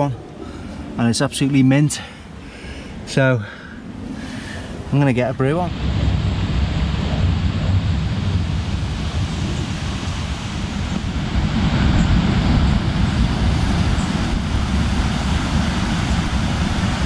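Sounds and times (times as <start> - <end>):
strong wind buffeting microphone: 0.0 - 17.0.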